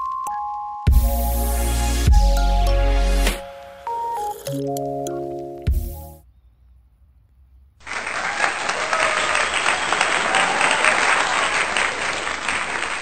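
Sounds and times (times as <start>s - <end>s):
crowd applauding: 7.8s - 13.0s.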